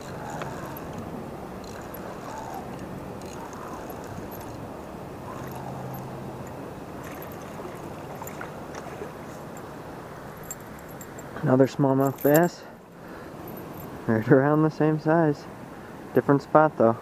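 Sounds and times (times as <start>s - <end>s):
fishing reel ticking and whirring: 0.0s - 8.3s
flowing river water: 0.0s - 11.4s.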